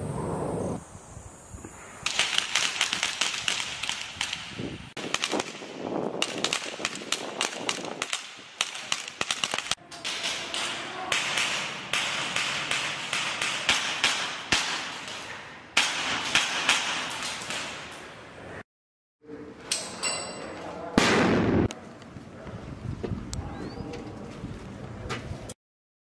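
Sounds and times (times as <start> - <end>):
rifle shots with echo: 21.0 - 21.7.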